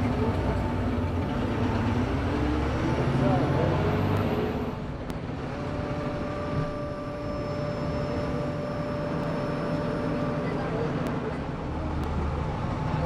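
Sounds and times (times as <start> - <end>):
bus engine and road noise: 0.0 - 13.0
faint high whine: 5.6 - 11.4.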